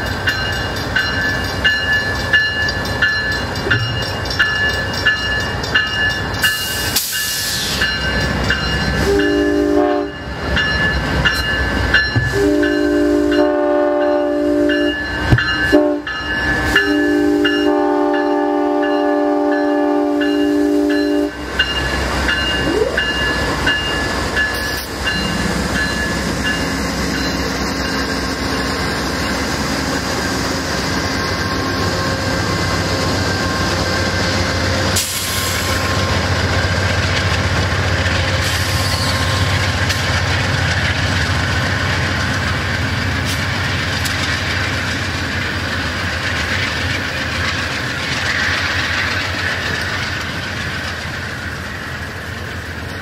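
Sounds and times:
train engine and wheels rumbling: 0.0 - 53.0
train air horn blasts: 9.0 - 10.2, 12.3 - 15.0, 15.7 - 16.1, 16.7 - 21.4.

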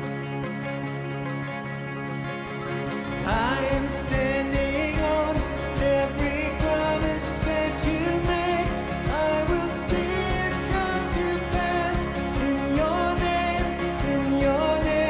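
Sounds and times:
strummed acoustic guitar: 0.0 - 15.0
man singing worship song: 3.2 - 15.0.

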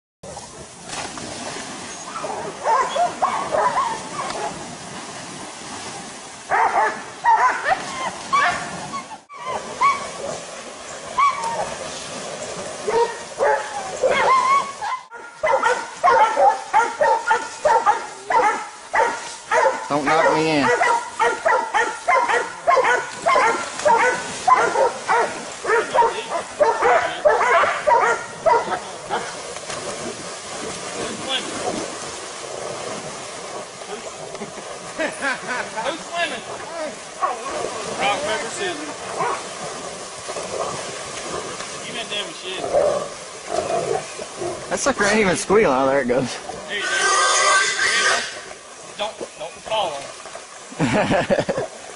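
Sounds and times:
fast river rushing: 0.3 - 51.9
dogs barking and yelping: 2.0 - 4.6, 6.5 - 10.4, 11.1 - 11.8, 12.8 - 29.4, 39.2 - 39.4.

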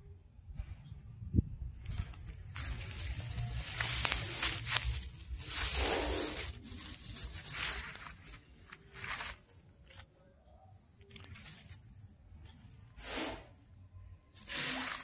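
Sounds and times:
leaves rustling and crackling: 1.7 - 10.1, 14.4 - 15.0.

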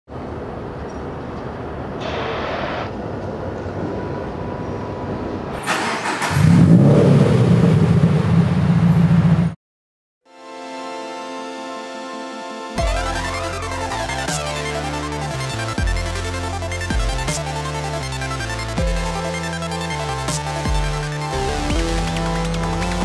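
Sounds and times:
car engine cranking and starting: 5.6 - 9.4
engine running with low rumble: 6.2 - 9.6.

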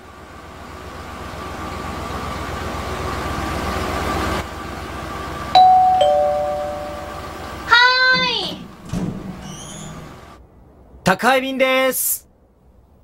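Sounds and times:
van engine idling: 0.0 - 10.7.

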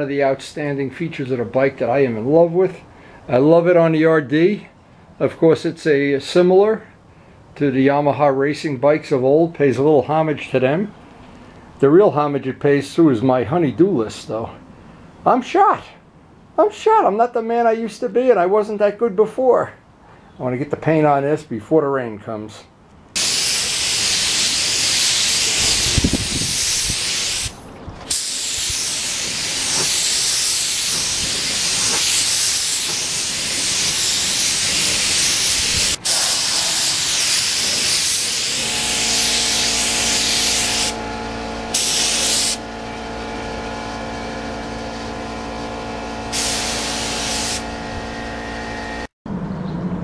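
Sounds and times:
paint spray gun hissing: 23.2 - 42.7, 46.2 - 47.8.

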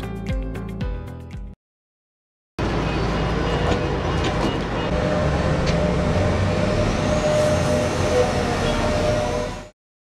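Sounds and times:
heavy diesel truck engine rumbling: 2.6 - 9.7.

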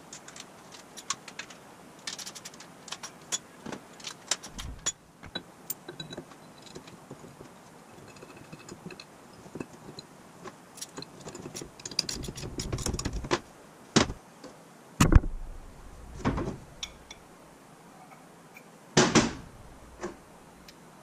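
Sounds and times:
metal parts clinking on workbench: 4.0 - 7.3.

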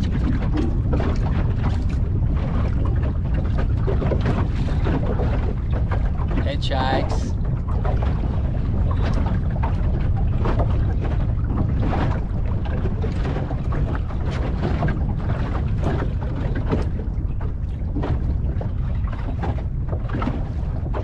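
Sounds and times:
water slapping against hull: 0.0 - 21.0
wind buffeting microphone: 0.0 - 21.0.

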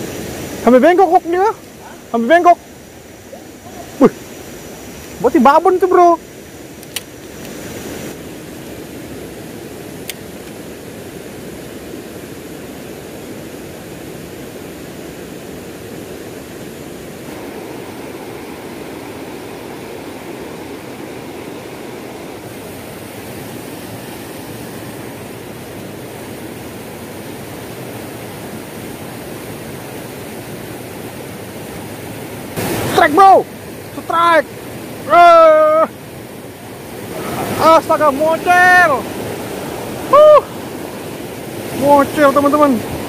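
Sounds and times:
river water rushing over rocks: 0.0 - 43.0
sharp click: 6.8 - 7.6.

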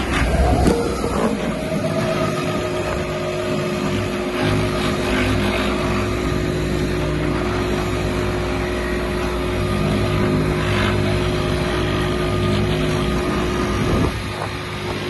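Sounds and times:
constant high tone: 0.0 - 12.8
diesel engine running: 0.0 - 15.0
vibratory plate humming: 0.0 - 15.0.

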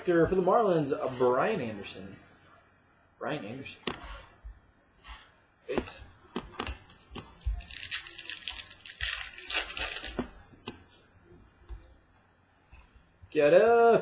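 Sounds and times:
cards handled on a table: 5.8 - 11.0
foil wrapper crinkling and tearing: 7.0 - 10.4.

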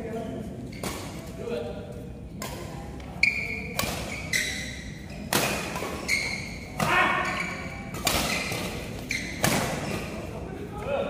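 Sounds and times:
shoes squeaking on court floor: 0.0 - 1.4, 3.0 - 10.4
rackets hitting shuttlecock: 2.4 - 10.1.

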